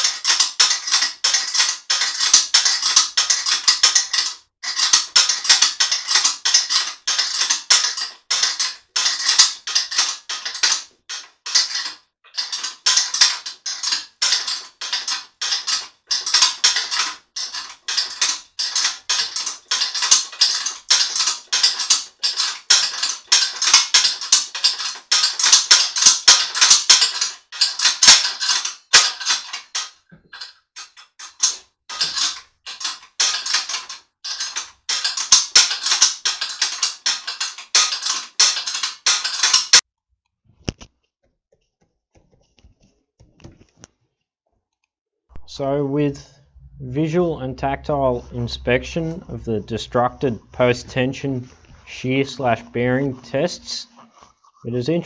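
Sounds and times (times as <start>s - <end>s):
small hard parts clattering: 0.0s - 39.8s.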